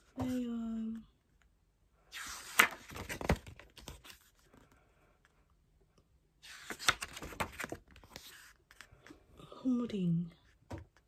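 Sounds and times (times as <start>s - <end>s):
photobook pages turning: 2.1s - 4.7s, 6.4s - 9.2s.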